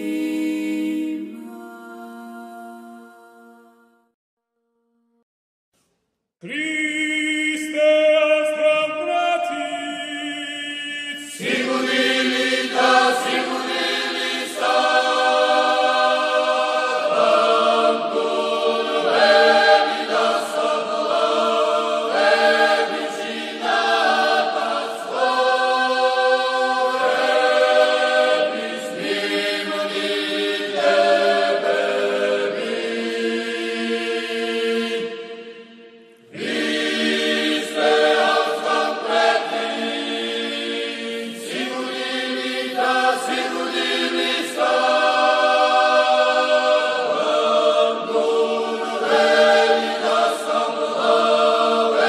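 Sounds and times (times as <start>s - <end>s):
choir singing a cappella chant: 0.0s - 4.0s, 6.4s - 52.0s.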